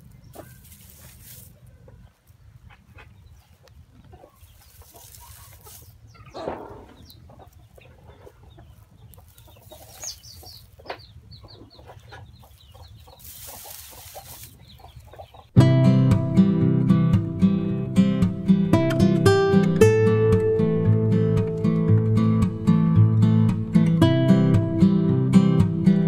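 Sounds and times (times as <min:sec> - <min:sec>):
chickens clucking: 0:00.0 - 0:15.6.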